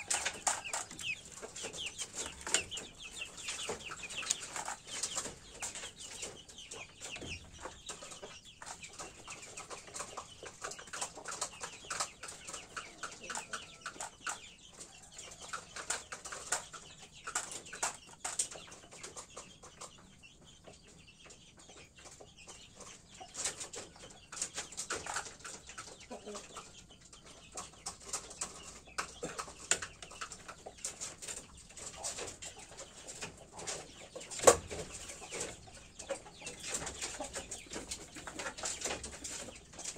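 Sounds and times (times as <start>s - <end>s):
beak pecking on metal tray: 0.0s - 6.4s
chickens clucking: 0.0s - 39.9s.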